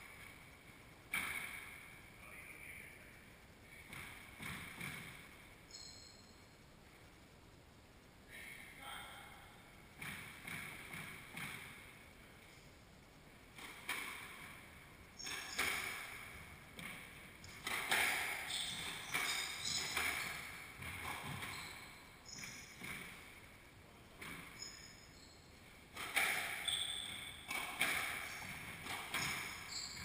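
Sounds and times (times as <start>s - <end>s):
sneaker squeaks on hardwood: 5.7s - 6.2s, 15.2s - 15.9s, 17.9s - 23.1s, 24.2s - 25.4s, 26.0s - 30.0s
squash ball hits echoing: 10.0s - 11.9s, 13.6s - 14.6s, 15.2s - 21.6s, 25.9s - 29.7s.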